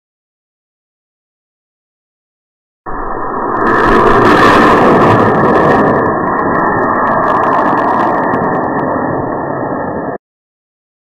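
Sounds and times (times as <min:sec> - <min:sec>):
wind buffeting microphone: 0:02.9 - 0:10.2.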